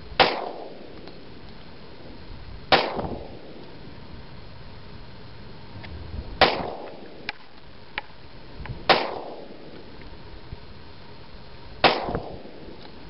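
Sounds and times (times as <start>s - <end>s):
pistol shots with echo: 0.2s - 0.9s, 2.7s - 3.6s, 6.4s - 7.2s, 8.9s - 9.7s, 11.8s - 12.8s.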